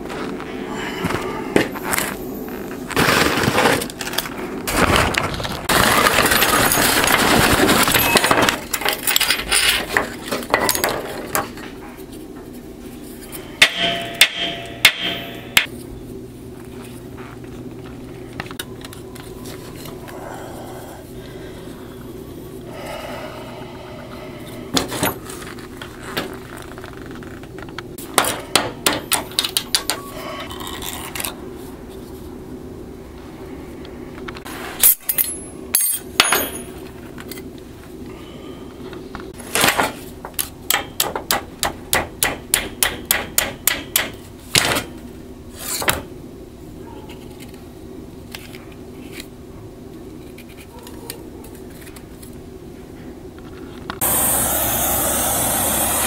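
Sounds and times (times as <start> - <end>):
steady low hum: 0.0 - 56.0
hammer striking metal: 13.6 - 15.7.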